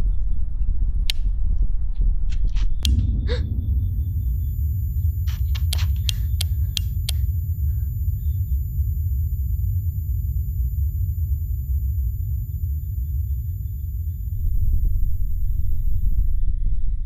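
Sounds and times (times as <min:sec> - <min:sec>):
low rumbling drone: 0:00.0 - 0:17.0
wall switches clicking: 0:05.3 - 0:07.3.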